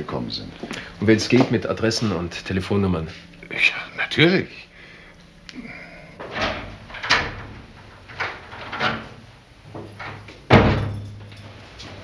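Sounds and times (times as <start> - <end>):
heavy door thud: 6.2 - 9.2, 9.8 - 11.2.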